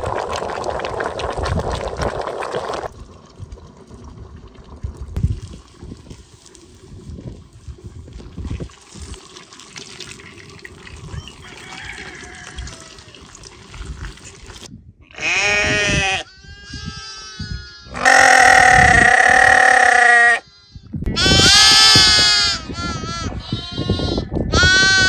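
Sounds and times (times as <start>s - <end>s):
farm animal bleating: 15.1s - 25.0s.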